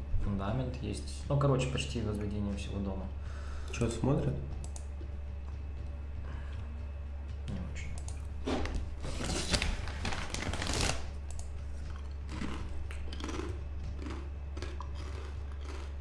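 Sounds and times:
steady low hum: 0:00.0 - 0:16.0
soft clicks: 0:04.6 - 0:04.9
rustling handling noise: 0:08.4 - 0:11.9.

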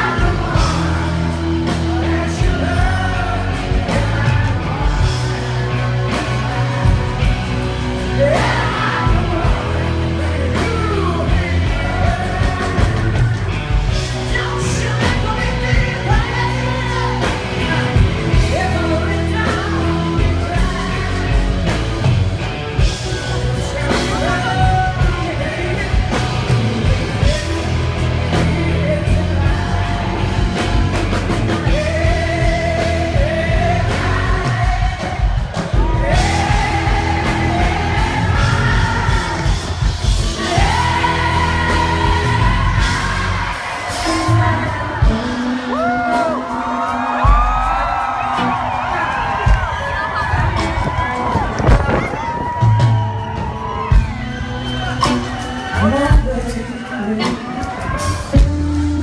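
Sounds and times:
live rock band: 0:00.0 - 0:59.0
woman singing: 0:14.2 - 0:21.4.

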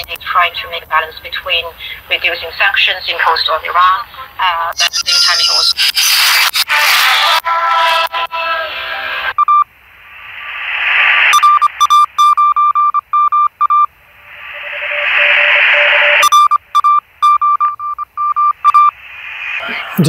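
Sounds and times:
shortwave radio broadcast: 0:04.2 - 0:09.3, 0:14.2 - 0:16.3, 0:18.9 - 0:20.0
radio hiss: 0:04.3 - 0:08.1, 0:10.0 - 0:11.4, 0:14.1 - 0:16.2, 0:18.9 - 0:20.0
morse code beeps: 0:09.4 - 0:09.6, 0:11.3 - 0:13.9, 0:14.7 - 0:19.0.

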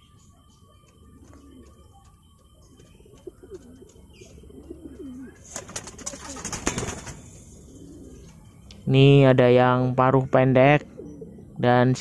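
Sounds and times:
pigeons cooing: 0:00.0 - 0:08.6, 0:10.7 - 0:12.0.

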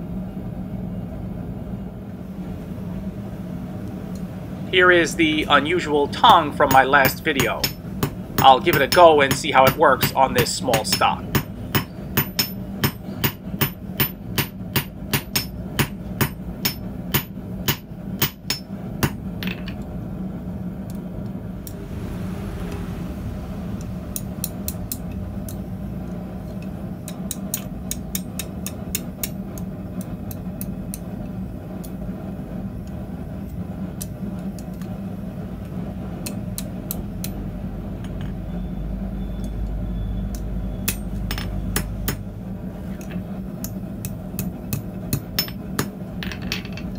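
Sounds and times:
steady low hum: 0:00.0 - 0:46.9
hammer striking steel on anvil: 0:06.6 - 0:19.7, 0:40.8 - 0:42.2.

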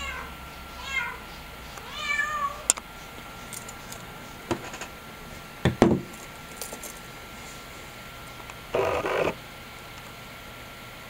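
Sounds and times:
cat meowing: 0:00.0 - 0:01.2, 0:01.8 - 0:02.6.

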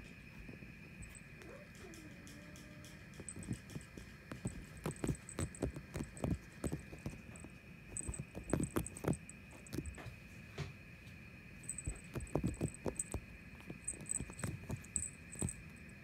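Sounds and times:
faint high-pitched hum: 0:00.0 - 0:16.0
paws thumping and scuffling on sofa: 0:03.2 - 0:10.2, 0:11.7 - 0:16.0.

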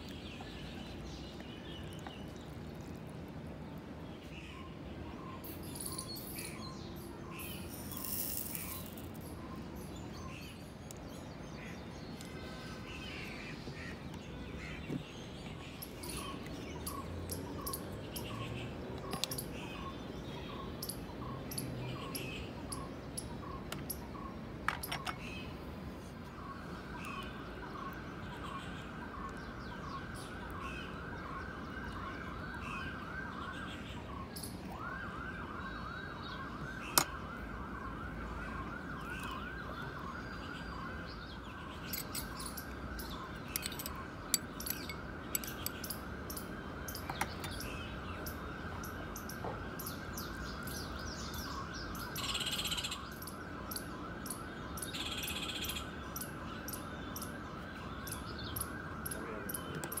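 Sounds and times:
steel spoon clinking against bowl: 0:43.5 - 0:45.8.

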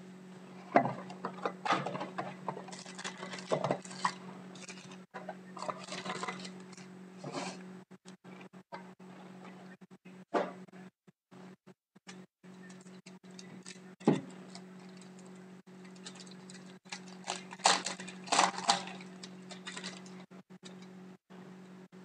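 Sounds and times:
low electrical hum: 0:00.0 - 0:22.0
foil wrapper crinkling: 0:01.2 - 0:05.0, 0:05.6 - 0:06.9, 0:12.6 - 0:20.9.

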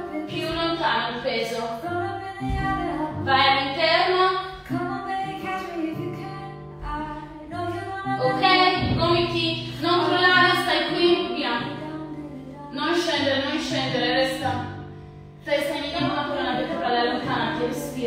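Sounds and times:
woman singing: 0:00.0 - 0:14.9, 0:15.5 - 0:18.0
bass line: 0:02.2 - 0:04.9, 0:05.9 - 0:18.0.

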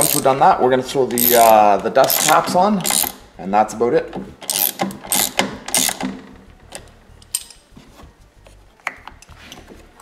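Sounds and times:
ratchet wrench clicking: 0:00.0 - 0:00.3, 0:01.2 - 0:03.2, 0:04.4 - 0:06.2.

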